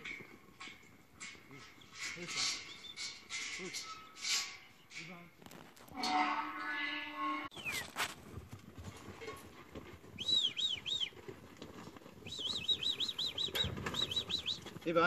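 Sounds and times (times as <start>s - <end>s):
sheep hooves scuffling on dirt: 0.0s - 6.2s, 7.5s - 15.0s
bird chirping: 2.6s - 3.1s, 7.5s - 7.9s, 10.2s - 11.2s, 12.2s - 14.7s.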